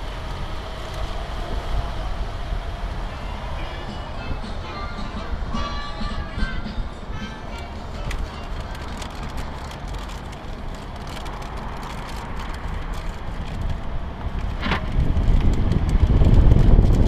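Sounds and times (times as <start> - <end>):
wheels rolling on pavement: 0.0 - 17.0
wind buffeting microphone: 12.6 - 17.0.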